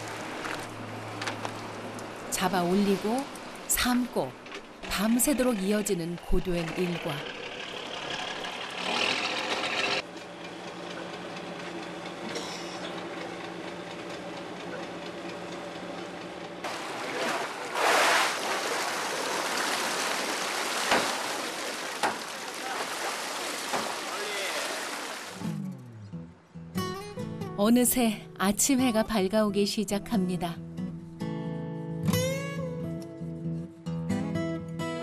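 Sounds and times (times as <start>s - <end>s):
boat engine hum: 0.0s - 25.6s.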